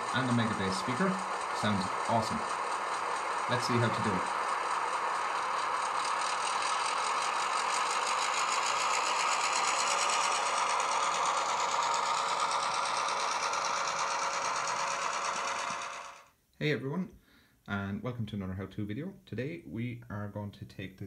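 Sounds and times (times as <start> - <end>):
model locomotive diesel engine sound: 0.0 - 16.4.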